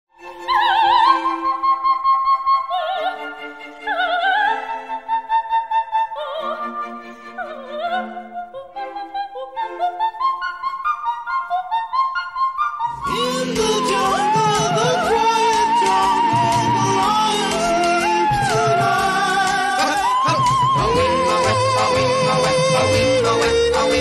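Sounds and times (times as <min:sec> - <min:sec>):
operatic soprano singing: 0:00.2 - 0:24.0
orchestral accompaniment: 0:13.0 - 0:24.0.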